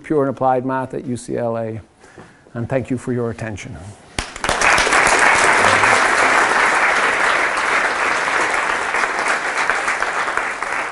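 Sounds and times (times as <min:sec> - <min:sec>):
audience applauding: 0:04.2 - 0:10.9.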